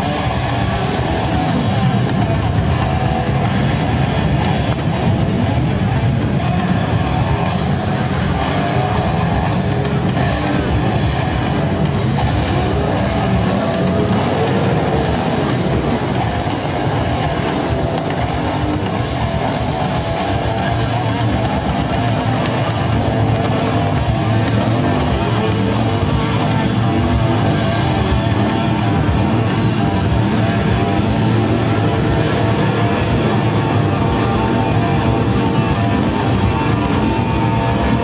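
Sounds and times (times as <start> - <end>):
heavy rock music: 0.0 - 38.0
motorcycle engine revving: 0.0 - 38.0.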